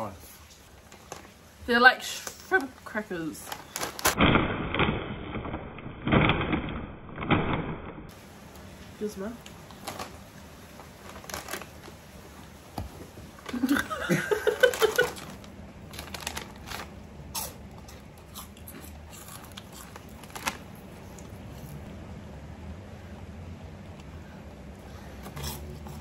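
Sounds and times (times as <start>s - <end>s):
laughter: 13.5s - 15.2s
crackers crunching while chewed: 13.5s - 21.9s, 25.2s - 26.0s.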